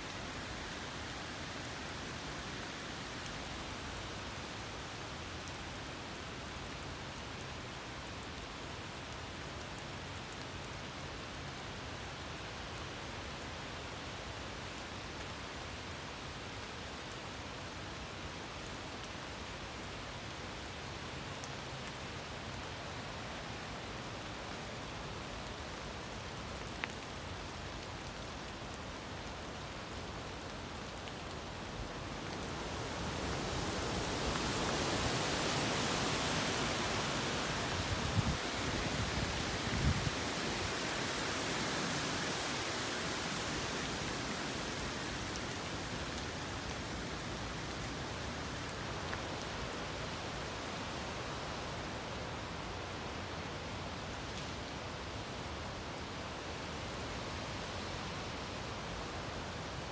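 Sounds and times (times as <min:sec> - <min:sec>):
steady rain: 0:00.0 - 0:59.9.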